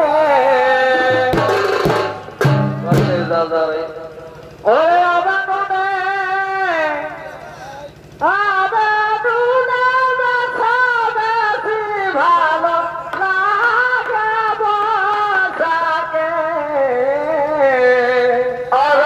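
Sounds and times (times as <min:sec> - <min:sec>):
rhythmic drumming: 0:00.8 - 0:04.7.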